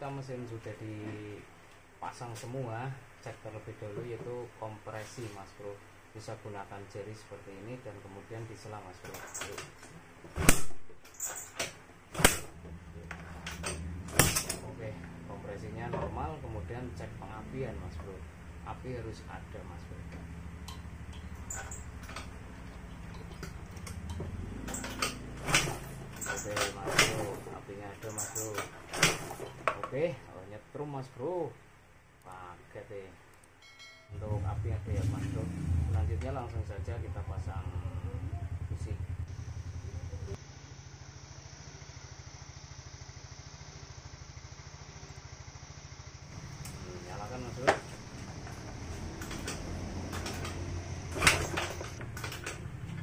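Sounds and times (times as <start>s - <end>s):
scooter engine idling: 12.6s - 26.9s, 35.7s - 53.0s
scooter engine turning over: 20.3s - 29.6s, 46.3s - 53.0s.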